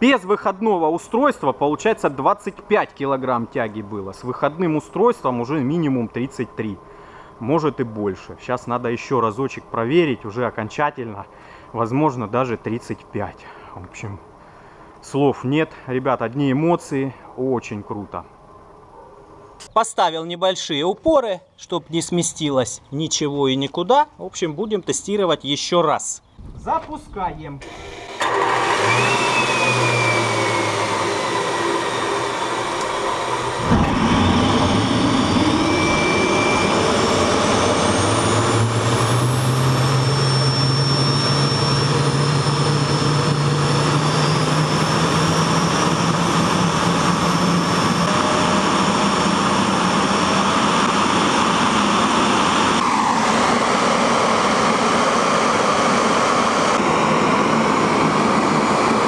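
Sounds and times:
rising turbine whine: 27.6s - 59.0s
turbojet engine running: 27.6s - 59.0s.

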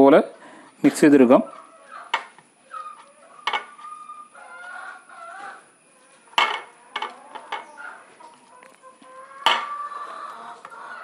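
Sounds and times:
chickens clucking: 0.2s - 11.0s
glass dishes clinking: 3.4s - 3.7s, 6.4s - 7.7s, 9.4s - 9.7s.

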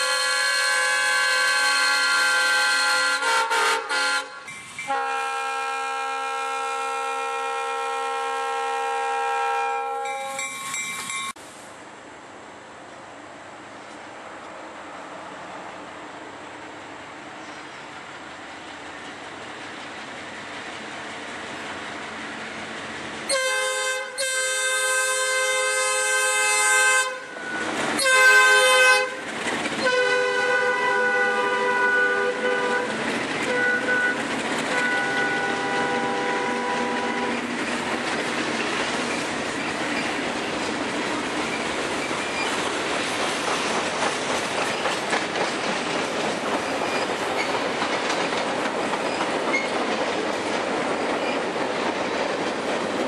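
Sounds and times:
train horn blasts: 0.0s - 10.4s, 23.3s - 37.5s.

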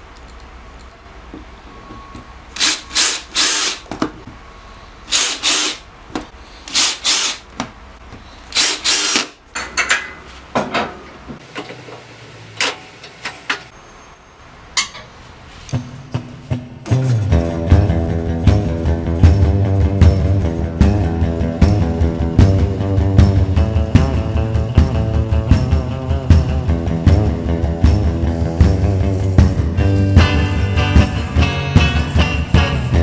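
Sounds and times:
power drill driving screws: 2.6s - 3.9s, 5.1s - 5.8s, 6.7s - 7.4s, 8.5s - 9.4s.

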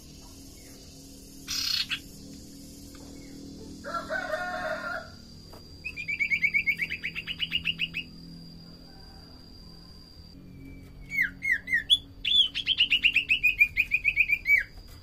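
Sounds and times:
bird buzzy call: 0.6s - 2.2s
bird rapid chattering: 1.5s - 2.1s.

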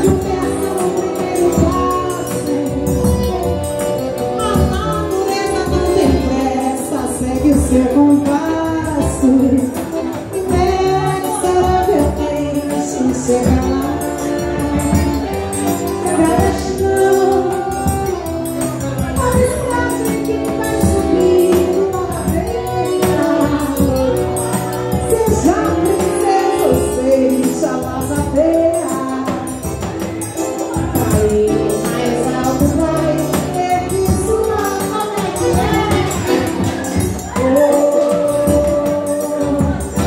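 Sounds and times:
piano accordion: 0.0s - 40.0s
woman singing: 0.0s - 40.0s
bass drum: 30.8s - 40.0s.

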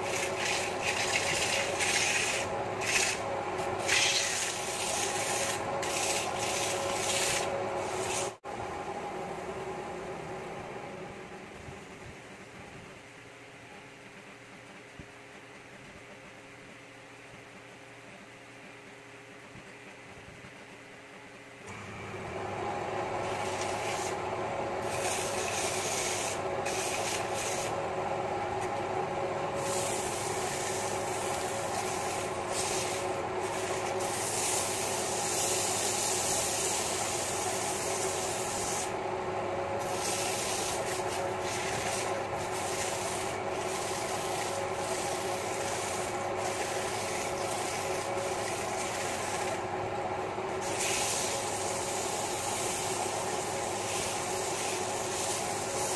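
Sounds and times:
sandpaper hissing on spinning wood: 0.0s - 8.4s, 23.2s - 24.2s, 24.8s - 27.8s, 29.6s - 39.0s, 39.8s - 49.6s, 50.6s - 55.9s
lathe motor hum: 21.7s - 55.9s.

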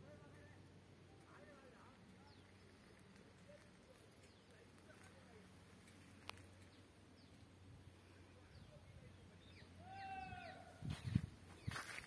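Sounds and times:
faint outdoor ambience: 0.0s - 12.0s
long bird call: 9.5s - 10.8s.

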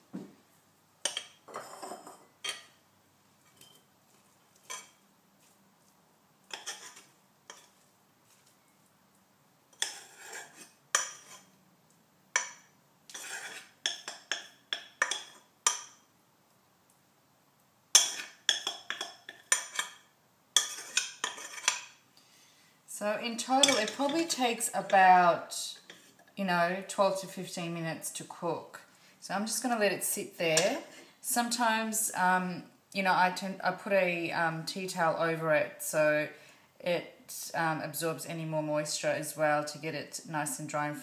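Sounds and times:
metal spoon scraping saucepan: 1.0s - 2.7s, 4.6s - 5.0s, 6.5s - 7.8s, 9.7s - 11.6s, 12.4s - 15.9s, 18.0s - 20.0s, 20.6s - 22.0s, 23.3s - 25.1s, 25.7s - 26.3s
spoon clinking against pan and bowl: 1.0s - 2.8s, 10.9s - 11.5s, 12.4s - 16.0s, 17.9s - 22.0s, 23.5s - 24.3s.

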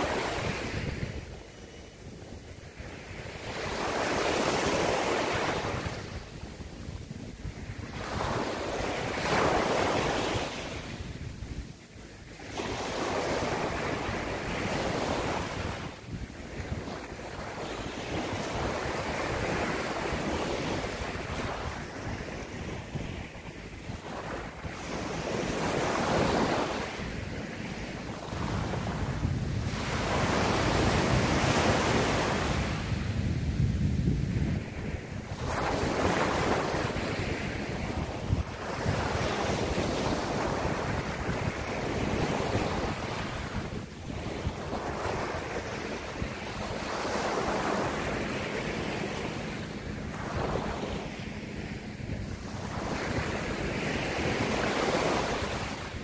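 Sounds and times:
small waves breaking on sand: 0.0s - 56.0s
wind buffeting microphone: 0.0s - 56.0s.

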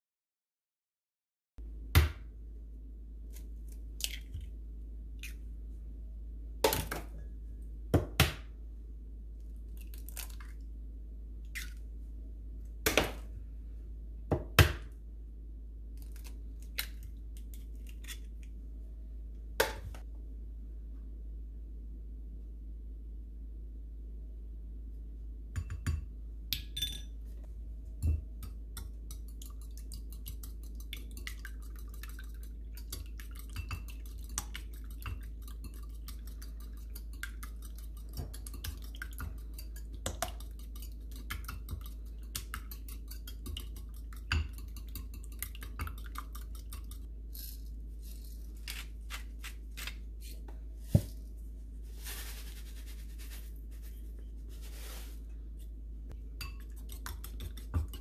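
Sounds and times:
whisk clicking against bowl: 28.1s - 47.1s
pepper shaker rush: 47.3s - 49.9s, 51.9s - 55.2s.

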